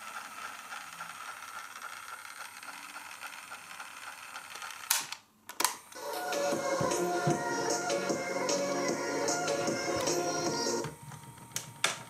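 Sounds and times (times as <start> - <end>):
cassette tape mechanism whirring: 0.0 - 12.0.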